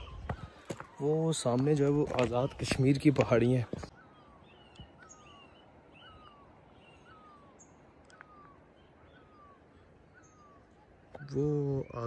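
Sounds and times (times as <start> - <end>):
low outdoor hiss: 4.0 - 12.0
faint click: 8.0 - 8.3.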